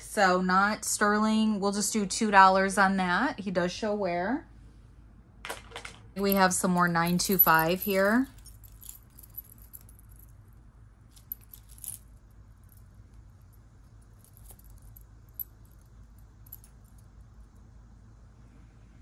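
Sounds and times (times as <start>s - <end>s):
faint low hum: 0.0s - 19.0s
jewelry clinking and jingling: 6.2s - 17.5s.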